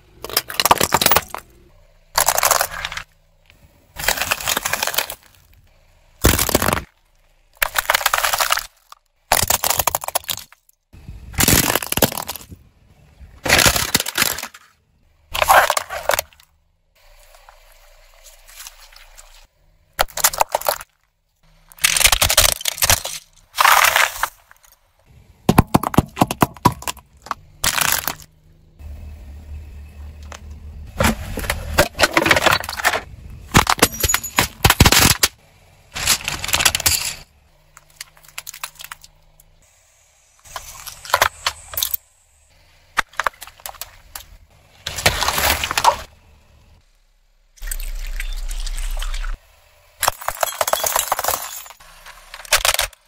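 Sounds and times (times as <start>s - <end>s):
tyre crushing brittle objects: 0.2s - 3.2s, 4.0s - 5.6s, 6.2s - 10.8s, 11.4s - 12.7s, 13.4s - 16.5s, 17.1s - 21.1s, 21.7s - 24.8s, 25.5s - 28.3s, 30.2s - 39.4s, 40.4s - 42.0s, 43.0s - 46.2s, 50.0s - 53.0s.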